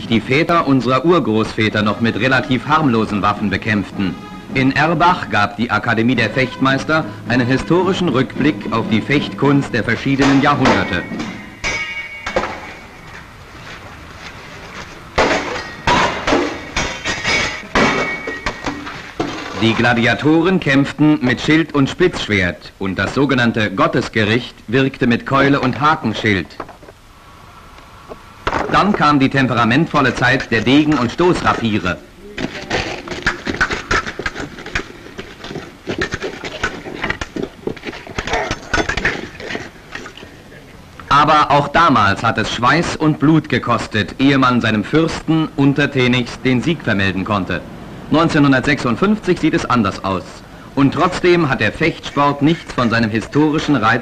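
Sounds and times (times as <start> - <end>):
low hiss: 0.0 - 33.3, 39.7 - 54.0
fencing blades clashing: 10.2 - 13.7, 14.8 - 19.6.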